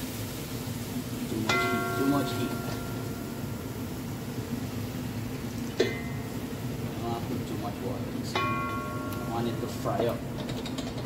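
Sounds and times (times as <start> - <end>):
steady low hum: 0.0 - 11.0
metallic clink of cookware: 1.5 - 3.1, 5.8 - 6.3.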